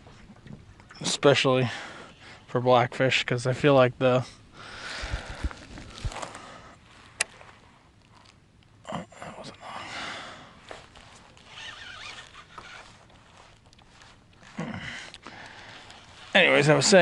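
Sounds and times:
scrapes and rustles: 4.9s - 8.4s, 10.6s - 17.0s
fishing reel click: 11.4s - 13.9s.

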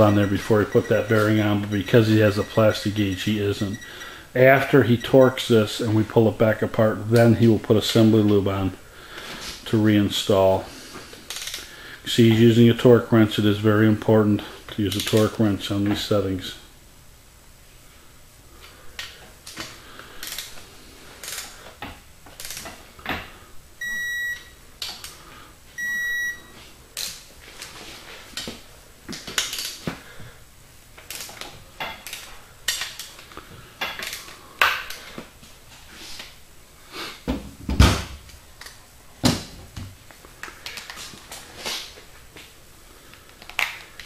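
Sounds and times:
short electronic beeps: 0.0s - 2.9s, 3.5s - 4.1s, 23.8s - 24.5s, 25.8s - 26.5s.

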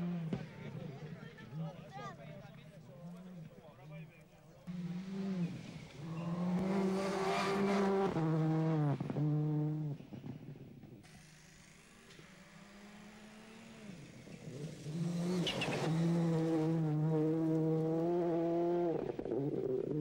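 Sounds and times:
rally car engine passing: 4.6s - 20.0s.

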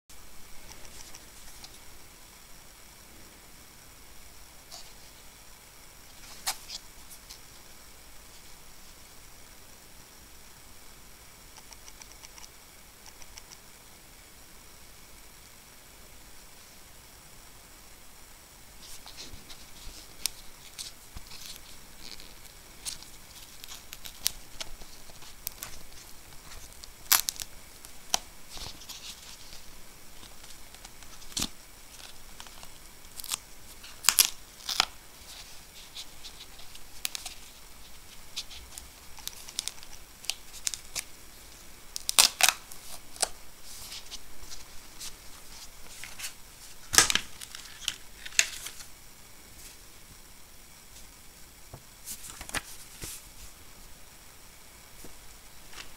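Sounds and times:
paper and plastic packaging rustling: 18.8s - 41.1s, 42.0s - 48.9s, 52.0s - 53.6s.

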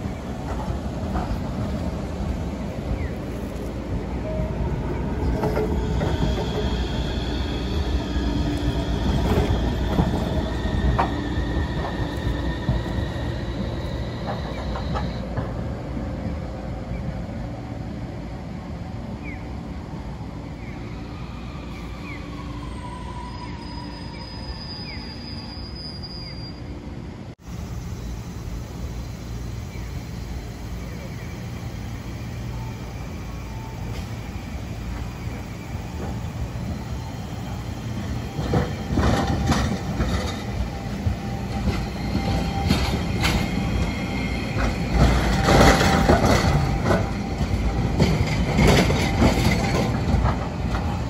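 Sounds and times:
tram wheels squealing: 0.0s - 17.2s, 20.2s - 27.1s, 27.7s - 51.0s
tram running rumble: 0.0s - 25.6s, 26.6s - 51.0s
wheels clanking on track joints: 38.3s - 51.0s.

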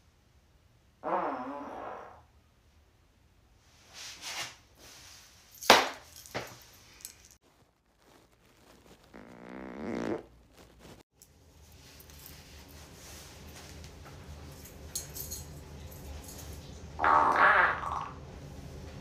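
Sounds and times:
buzzing fart: 1.0s - 2.4s, 9.1s - 10.4s, 17.0s - 18.2s
hand slapping backside: 5.7s - 6.5s.

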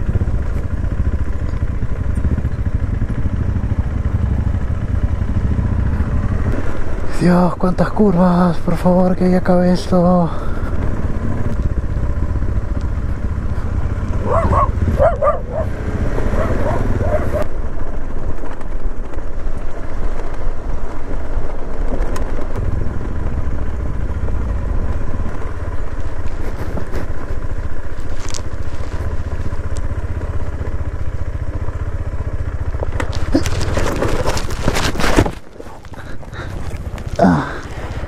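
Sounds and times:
motorcycle engine running: 0.0s - 38.0s
dog barking: 14.2s - 17.5s.

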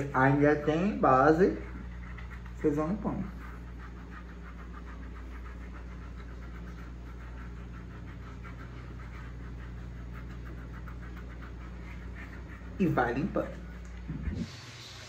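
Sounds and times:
low hum: 0.0s - 15.0s
soapy skin being scrubbed: 0.0s - 15.0s.

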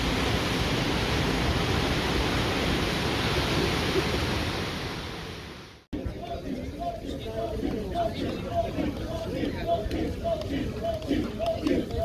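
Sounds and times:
faint voices: 6.0s - 12.0s.

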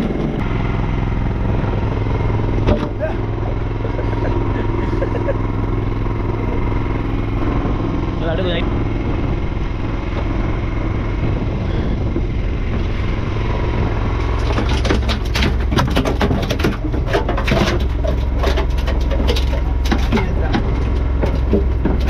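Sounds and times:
boat engine humming: 0.0s - 22.0s
knocks and clatter in fish hold: 14.2s - 22.0s.

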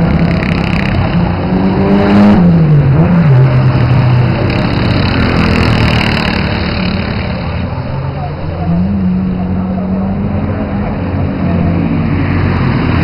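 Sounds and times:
kart engines running: 0.0s - 1.7s, 2.3s - 11.1s
kart engine slowing: 0.0s - 9.8s.

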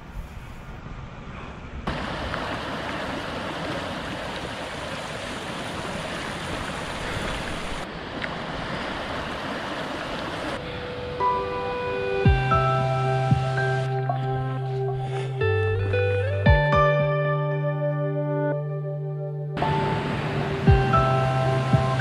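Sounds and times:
stream rushing over rocks: 1.9s - 10.7s, 19.6s - 22.0s.

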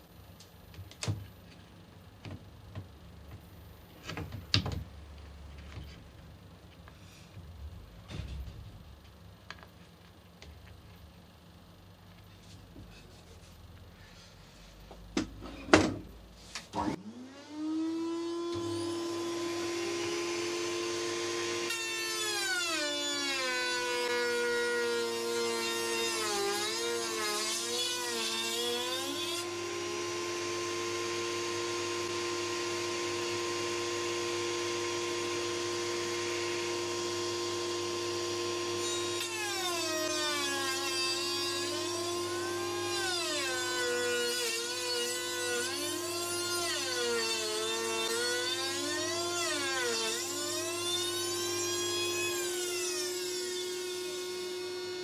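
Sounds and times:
router whining: 16.8s - 55.0s.

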